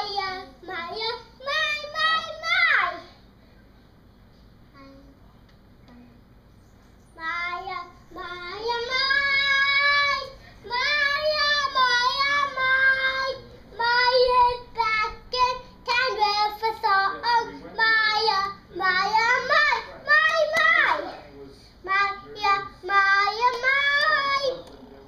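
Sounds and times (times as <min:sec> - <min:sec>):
young child singing: 0:07.2 - 0:21.1, 0:21.9 - 0:24.6.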